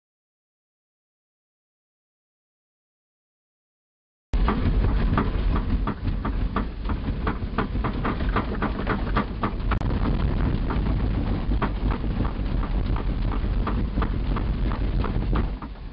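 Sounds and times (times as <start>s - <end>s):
rattles and knocks: 4.4s - 15.9s
vehicle low rumble: 4.4s - 15.9s.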